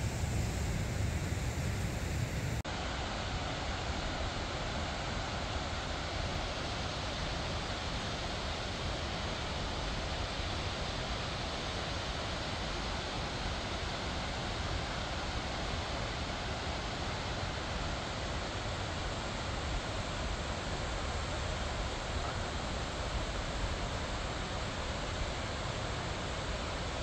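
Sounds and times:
waterfall and stream rushing: 0:00.0 - 0:03.0.

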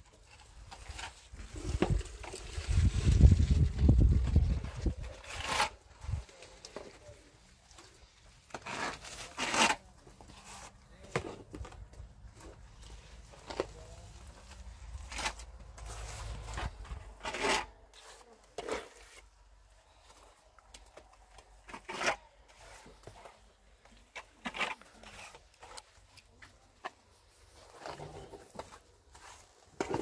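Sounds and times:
trowel scraping mortar: 0:04.8 - 0:06.5, 0:08.3 - 0:10.8, 0:13.4 - 0:19.4, 0:21.4 - 0:23.2, 0:23.9 - 0:26.0, 0:27.8 - 0:30.0.

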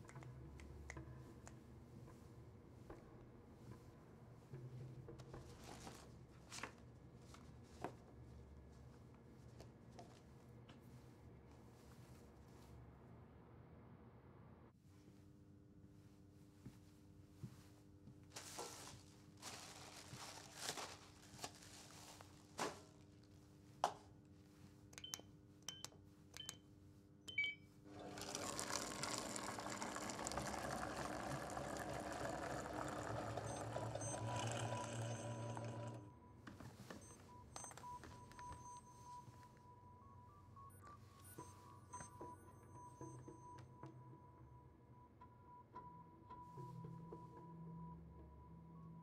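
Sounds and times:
vending machine pouring coffee: 0:27.9 - 0:36.1.

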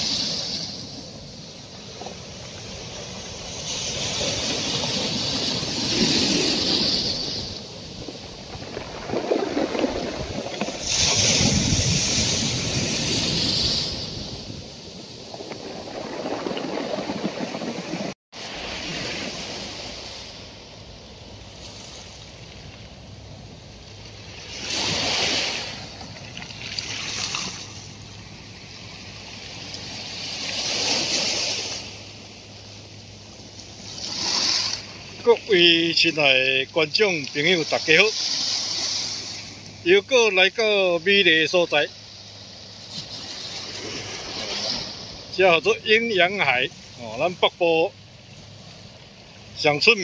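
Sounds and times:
wind on microphone: 0:00.0 - 0:20.4
sea waves washing in: 0:00.0 - 0:50.0.

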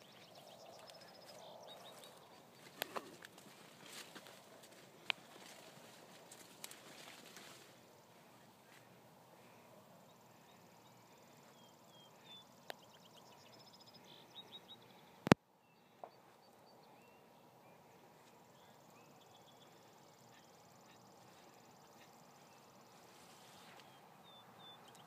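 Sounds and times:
insects trilling: 0:17.8 - 0:23.9.

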